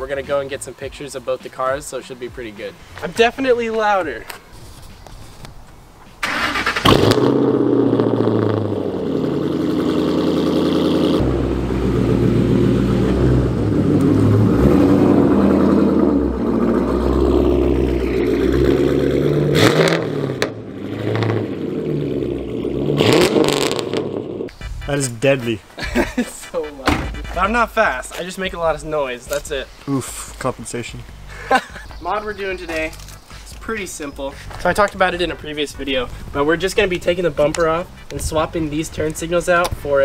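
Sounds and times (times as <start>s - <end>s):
car engine starting and revving: 6.2s - 25.0s.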